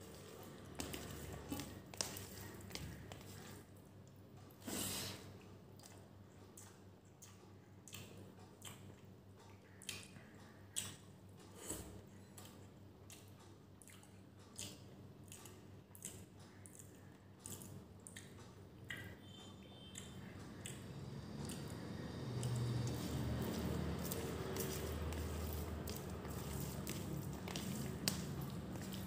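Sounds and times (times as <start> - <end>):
wet chewing: 0.0 - 4.2, 12.3 - 19.1, 19.9 - 29.0
fingers squelching food: 21.4 - 29.0.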